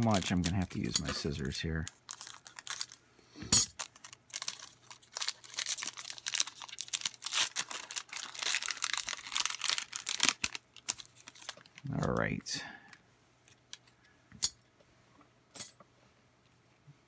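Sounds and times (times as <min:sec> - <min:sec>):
foil wrapper crinkling and tearing: 0:00.0 - 0:03.0, 0:03.7 - 0:12.0.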